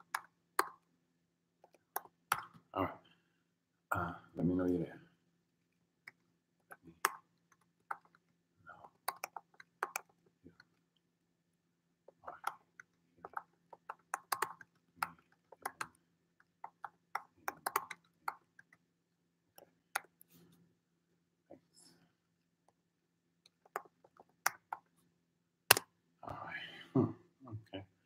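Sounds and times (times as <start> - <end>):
keyboard typing: 8.9 - 10.7, 12.3 - 16.0, 16.6 - 18.7.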